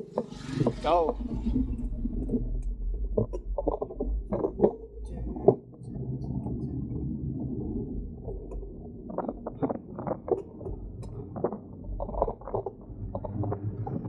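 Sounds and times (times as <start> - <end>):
bicycle tyres rolling: 0.0 - 14.0.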